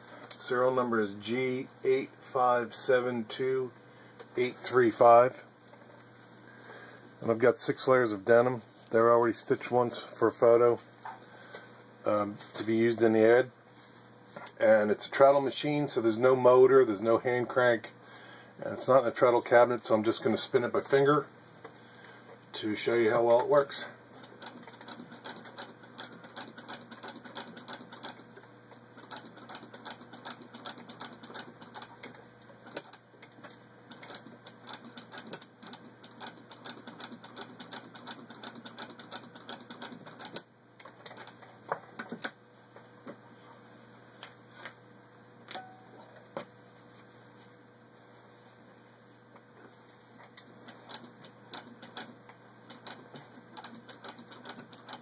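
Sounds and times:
sewing machine clicking: 24.2 - 28.2, 29.0 - 42.4, 50.2 - 55.0.

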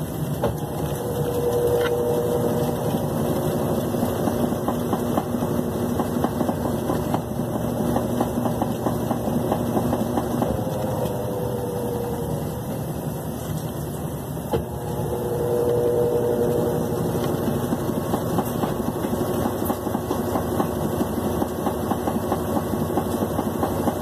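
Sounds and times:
washing machine spinning: 0.0 - 24.0.

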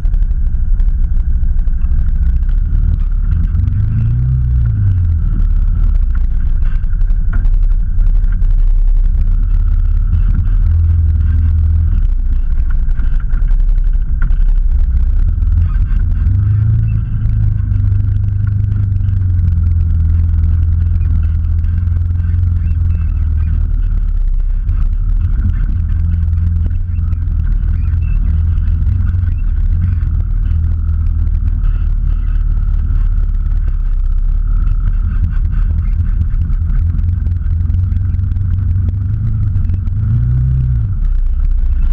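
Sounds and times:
faint steady whine: 0.0 - 41.9
off-road vehicle engine droning: 0.0 - 41.9.

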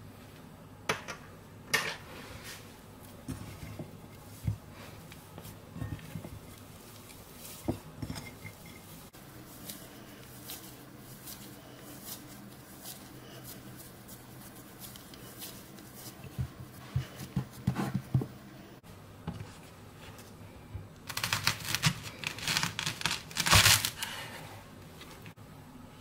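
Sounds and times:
hands kneading dough: 2.1 - 25.4
crinkly rustling and tearing: 21.0 - 24.2.

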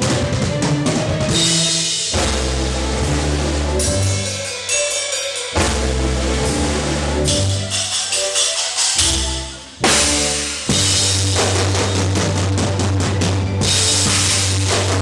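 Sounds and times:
cymbal crashes: 9.8 - 12.3, 13.6 - 15.0
bass drum: 9.8 - 15.0.

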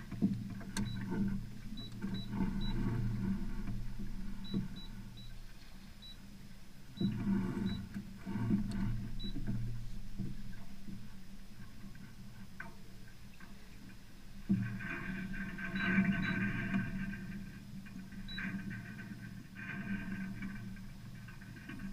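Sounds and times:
low motor whir: 0.0 - 6.3.

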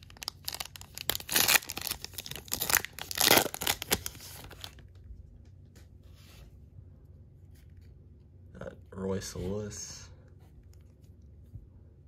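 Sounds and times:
foil wrapper tearing and crinkling: 0.0 - 4.8.

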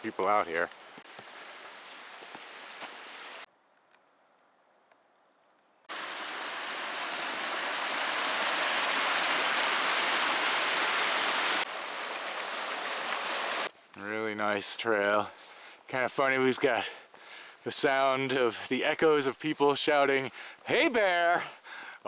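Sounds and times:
creek rushing over rocks: 1.0 - 3.5, 5.9 - 13.7.

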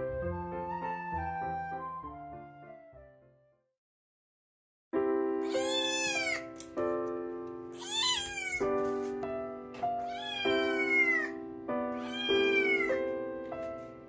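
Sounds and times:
kitten meowing: 5.4 - 6.6, 7.8 - 8.7, 10.0 - 11.4, 12.0 - 13.0
background music with held chords: 8.7 - 14.0.

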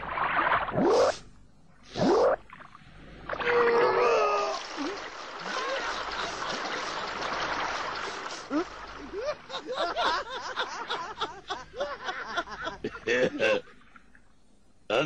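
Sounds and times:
water gushing from barrel: 3.3 - 9.5.

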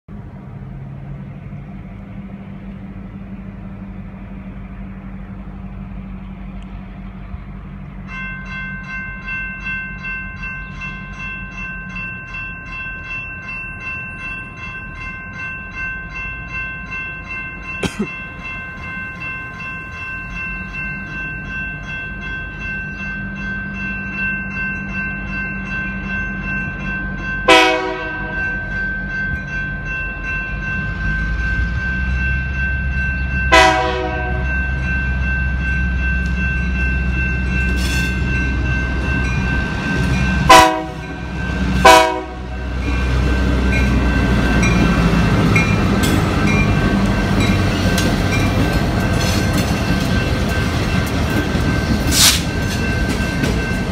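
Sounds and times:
locomotive engine rumble: 0.1 - 53.9
railroad crossing bells ringing: 0.1 - 53.9
train horn blasts: 27.5 - 28.5, 33.5 - 34.6, 40.4 - 41.2, 41.8 - 42.8.

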